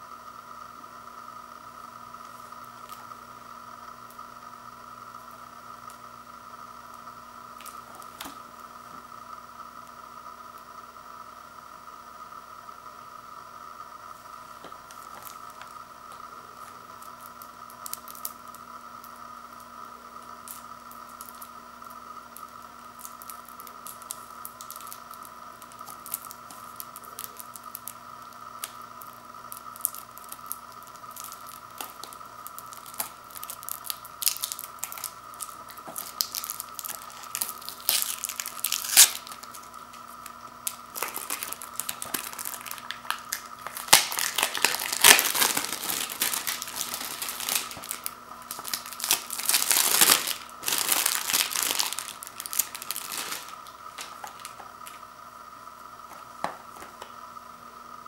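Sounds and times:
steady faint hum: 0.0 - 58.0
plastic wrap crackling: 14.6 - 19.2, 22.3 - 55.1.

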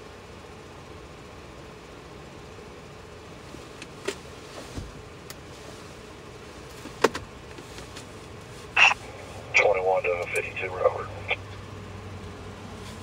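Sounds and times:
low hum of stopped car: 0.0 - 13.0.

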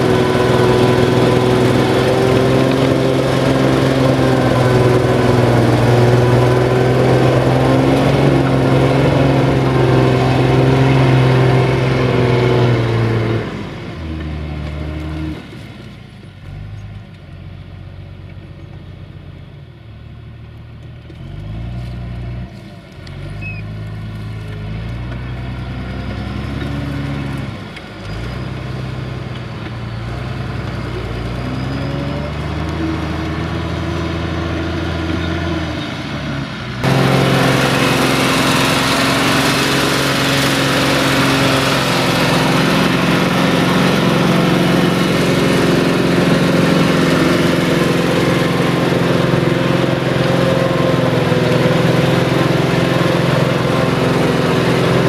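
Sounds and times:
plough turning mud: 0.0 - 15.4, 36.8 - 55.0
tractor diesel engine: 0.0 - 55.0.

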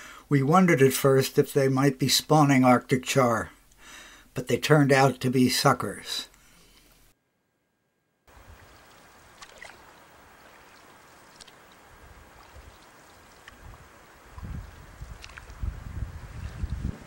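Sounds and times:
river water washing around canoe: 8.3 - 15.6
light clicks and drips: 8.6 - 15.6.

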